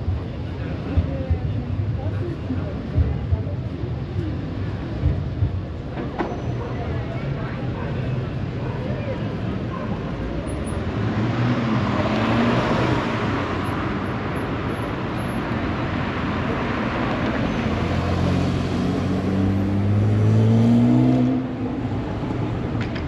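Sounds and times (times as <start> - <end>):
city traffic noise: 0.0 - 23.0.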